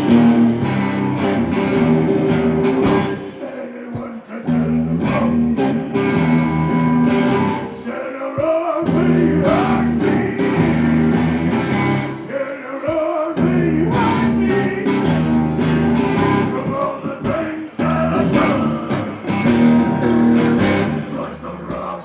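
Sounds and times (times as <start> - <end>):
live rock music on electric guitars: 0.0 - 3.5, 4.5 - 7.9, 8.8 - 12.3, 13.4 - 22.0
person singing: 0.0 - 22.0
repeating bass riff: 17.8 - 21.8.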